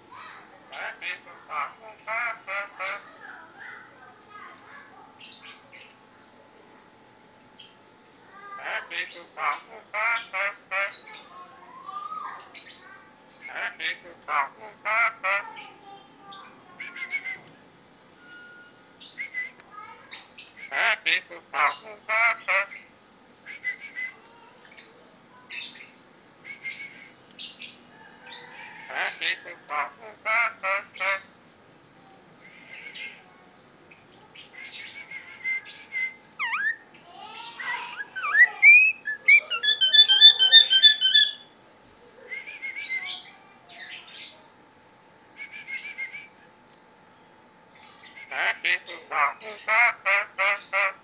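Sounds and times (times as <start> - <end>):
bird chirping: 33.9 - 41.5
bird harsh rasp: 39.3 - 41.4.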